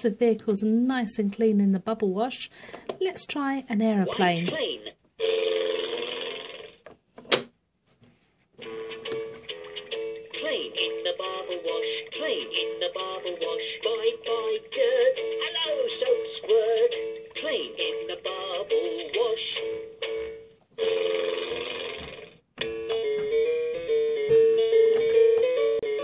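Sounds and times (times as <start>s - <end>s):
toy electronic tune with singing: 9.6s - 20.2s.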